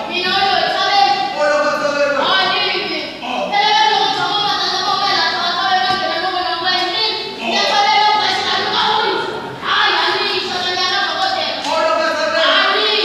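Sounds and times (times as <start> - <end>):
high voice singing: 1.1 - 6.0.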